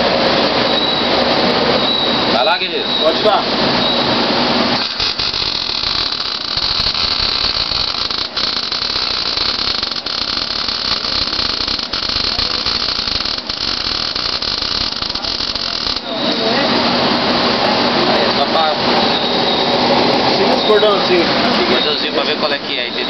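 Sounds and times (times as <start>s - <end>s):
welding arc crackling: 4.1s - 18.6s.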